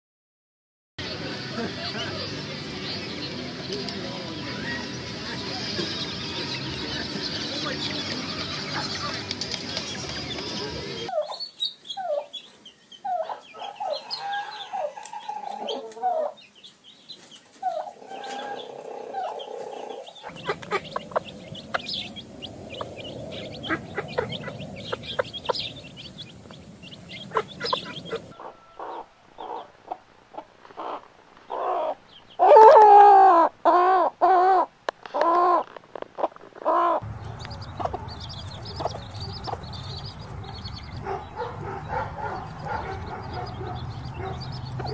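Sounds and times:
chicks peeping: 0:01.0 - 0:44.9
hens clucking: 0:12.0 - 0:16.6, 0:17.2 - 0:44.9
repeated hen calls: 0:17.6 - 0:26.2, 0:26.8 - 0:37.0.

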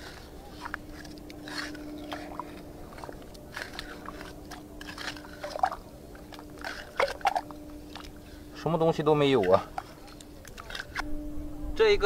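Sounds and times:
trowel scraping wet sand: 0:00.0 - 0:07.2.

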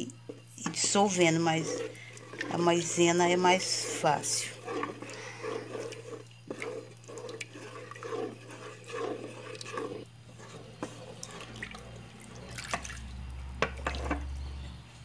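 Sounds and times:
sauce swishing while stirred: 0:00.3 - 0:14.3.

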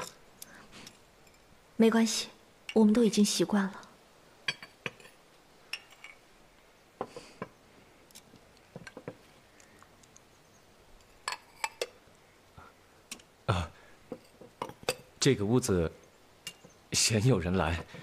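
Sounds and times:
crockery clinking and knocking: 0:04.5 - 0:05.2, 0:08.7 - 0:09.2, 0:11.1 - 0:12.0, 0:14.1 - 0:15.1.

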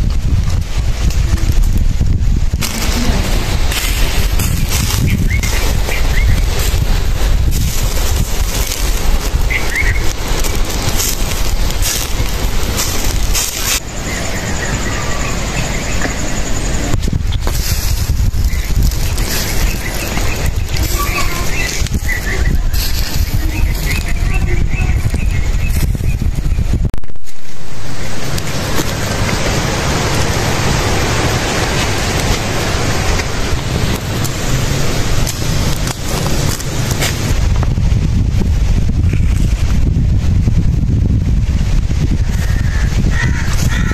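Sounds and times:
faint crackles: 0:00.0 - 0:15.4, 0:16.8 - 0:26.4, 0:27.0 - 0:39.8
wind buffeting microphone: 0:00.0 - 0:43.9
bird chirping: 0:04.4 - 0:06.8, 0:09.3 - 0:10.4, 0:13.6 - 0:17.0, 0:18.2 - 0:26.7.

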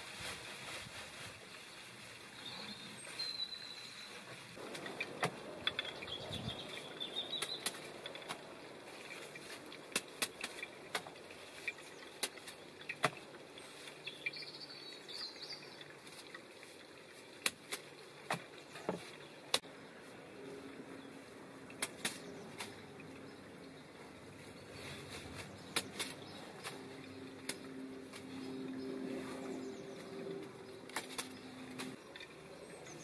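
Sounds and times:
foliage rustling: 0:00.0 - 0:32.2
faint bird chirps: 0:02.4 - 0:04.3
leaves snapping off stems: 0:07.3 - 0:08.5, 0:09.2 - 0:11.2, 0:21.7 - 0:22.9, 0:25.0 - 0:28.5, 0:30.9 - 0:32.0.

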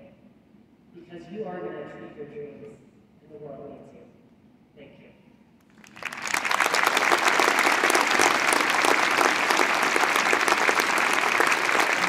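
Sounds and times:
audience clapping: 0:05.7 - 0:12.0.

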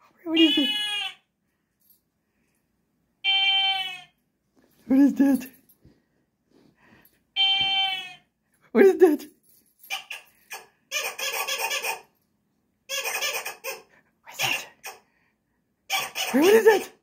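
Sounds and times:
squeaky toy squeaks: 0:00.4 - 0:01.2, 0:03.2 - 0:04.2, 0:07.4 - 0:08.3, 0:09.8 - 0:12.2, 0:12.9 - 0:15.1, 0:15.9 - 0:17.0.

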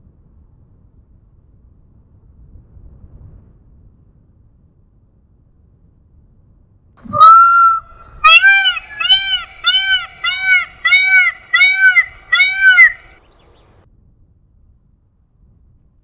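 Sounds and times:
peacock calling: 0:07.0 - 0:13.2.

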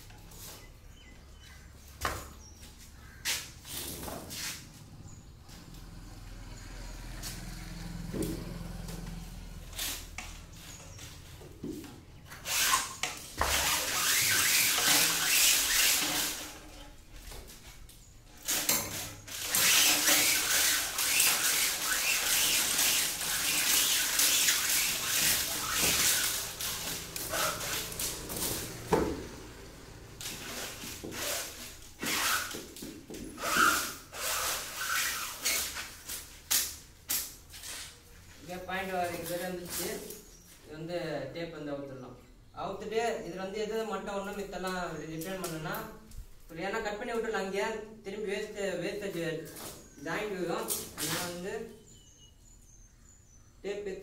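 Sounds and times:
rubbing and scraping handling noise: 0:02.3 - 0:04.8, 0:09.7 - 0:29.0, 0:30.1 - 0:40.4.

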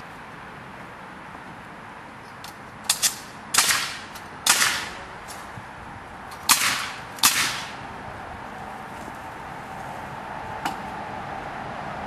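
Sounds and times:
nail gun firing: 0:02.9 - 0:05.0, 0:06.5 - 0:07.8.

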